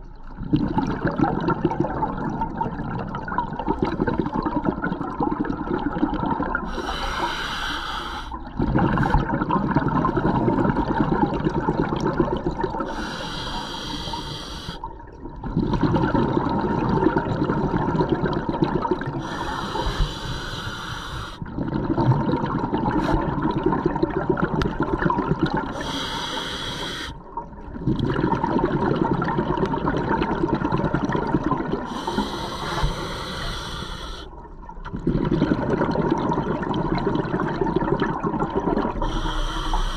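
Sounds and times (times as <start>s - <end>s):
exhaled bubbles burbling: 0.0s - 6.8s, 8.4s - 13.1s, 14.8s - 20.0s, 21.4s - 26.4s, 27.2s - 39.9s
regulator air hiss: 6.7s - 8.4s, 12.9s - 14.8s, 19.2s - 21.4s, 25.8s - 27.2s, 31.9s - 34.3s, 39.0s - 39.9s.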